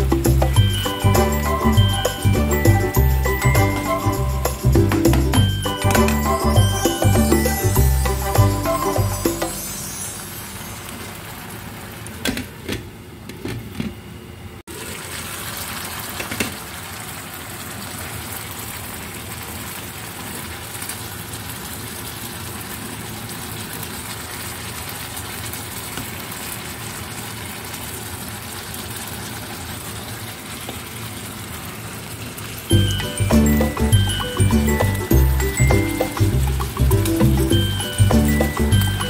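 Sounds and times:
sauce bubbling in a wok: 0:14.7 - 0:33.1.

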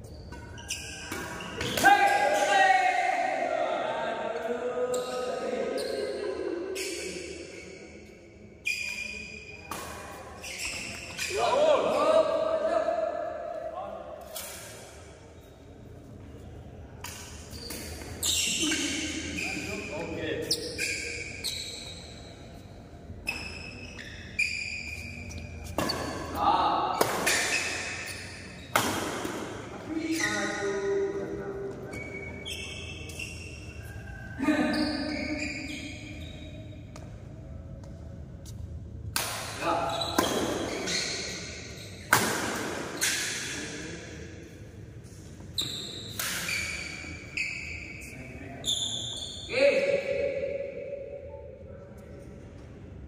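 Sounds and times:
shoe squeaks: 0:00.0 - 0:01.9, 0:04.8 - 0:12.1, 0:14.2 - 0:29.3, 0:29.9 - 0:38.6, 0:39.6 - 0:43.9, 0:45.0 - 0:49.8
rackets striking shuttlecocks: 0:27.0 - 0:28.1
rackets smacking shuttlecock: 0:27.0 - 0:29.6, 0:39.1 - 0:40.9, 0:42.1 - 0:43.6, 0:46.1 - 0:46.8.

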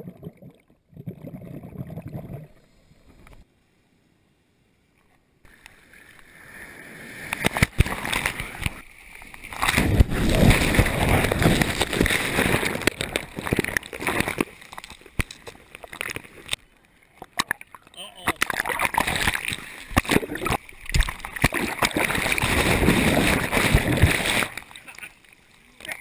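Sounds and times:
water sloshing over camera: 0:07.3 - 0:25.2.

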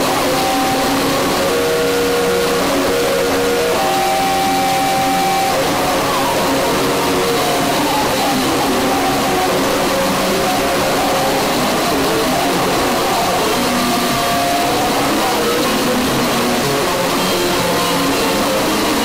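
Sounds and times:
wall of noise and hiss: 0:00.0 - 0:19.0.

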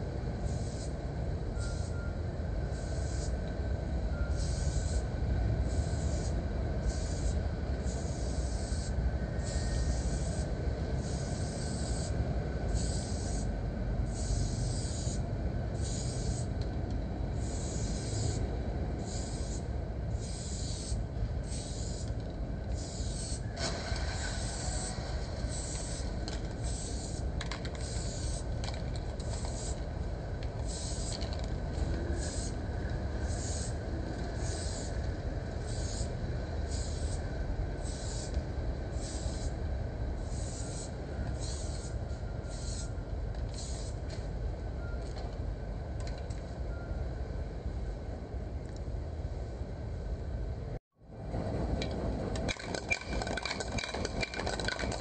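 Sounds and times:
spray paint can hissing: 0:04.4 - 0:05.0, 0:06.9 - 0:12.1, 0:12.7 - 0:13.5, 0:14.1 - 0:15.2, 0:15.8 - 0:16.5, 0:17.4 - 0:18.4, 0:19.0 - 0:19.6, 0:20.2 - 0:22.2, 0:22.8 - 0:28.5, 0:29.2 - 0:29.8, 0:30.6 - 0:31.3, 0:32.2 - 0:32.6, 0:33.3 - 0:33.8, 0:34.4 - 0:34.9, 0:35.7 - 0:36.1, 0:36.7 - 0:37.2, 0:37.8 - 0:39.5, 0:40.2 - 0:42.9, 0:43.5 - 0:44.0.

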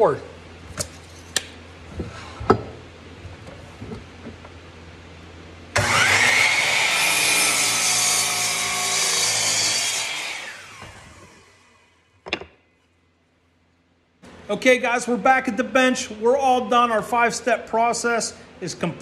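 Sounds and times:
miter saw cutting wood: 0:05.8 - 0:11.9.

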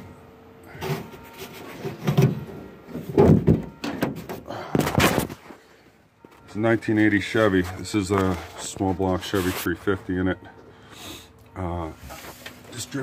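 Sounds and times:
metal clunks and rattles of car hood: 0:01.8 - 0:05.4.

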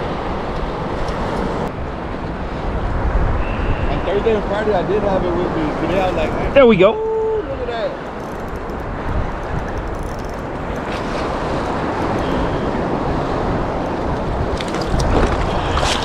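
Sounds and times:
wind rumbling on microphone: 0:00.0 - 0:16.0
surf water sloshing: 0:04.0 - 0:16.0.

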